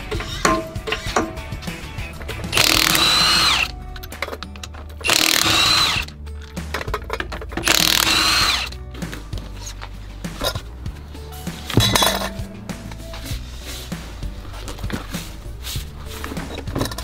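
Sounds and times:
impact wrench whirring: 0:02.5 - 0:03.7, 0:05.0 - 0:06.1, 0:07.6 - 0:08.8.

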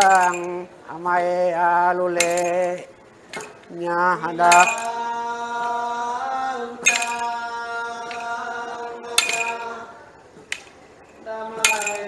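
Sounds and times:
men chanting long notes: 0:03.7 - 0:10.1, 0:11.2 - 0:12.0
staff striking floor: 0:04.5 - 0:05.0, 0:06.9 - 0:07.5, 0:09.2 - 0:09.8, 0:11.6 - 0:12.0.

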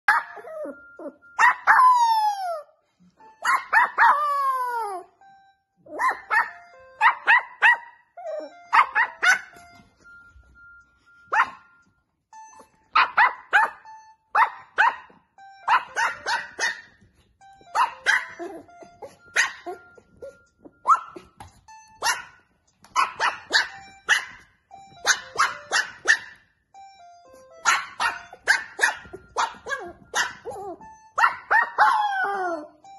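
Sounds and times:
puppy barking: 0:00.1 - 0:02.1, 0:03.4 - 0:04.7, 0:05.9 - 0:09.7, 0:11.3 - 0:11.8, 0:12.9 - 0:17.1, 0:17.7 - 0:26.5, 0:27.6 - 0:32.7
phone ringtone melody: 0:00.1 - 0:32.9.

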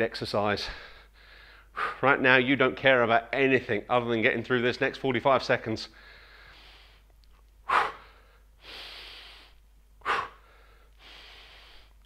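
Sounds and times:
man breathing hard: 0:00.6 - 0:02.0, 0:05.9 - 0:12.0.

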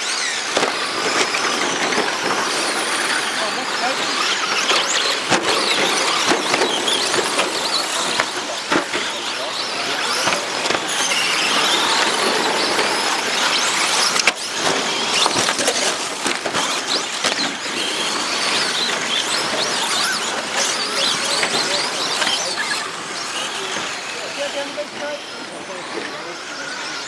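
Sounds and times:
rc truck motors whining: 0:00.0 - 0:27.0.

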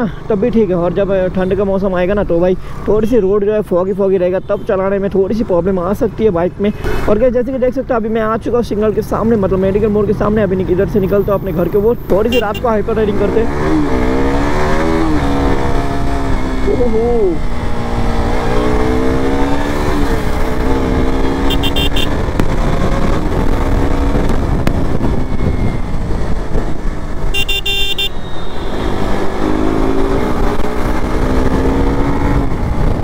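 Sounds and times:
motorcycle engine revving: 0:12.4 - 0:33.0
wind rush on microphone: 0:22.1 - 0:27.3, 0:29.2 - 0:33.0.

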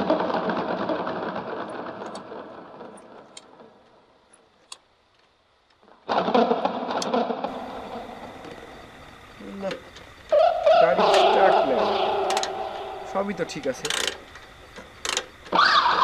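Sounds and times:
motorcycle engine rumble: 0:06.5 - 0:16.0
light engine clicks: 0:13.8 - 0:15.6.

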